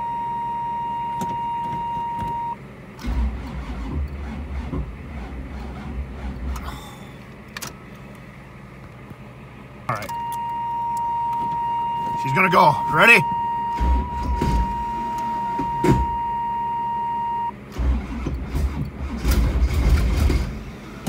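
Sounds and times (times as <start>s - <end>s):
high warning tone: 0.0s - 2.6s, 9.9s - 17.6s
car engine cranking on starter: 1.2s - 8.2s, 9.9s - 21.0s.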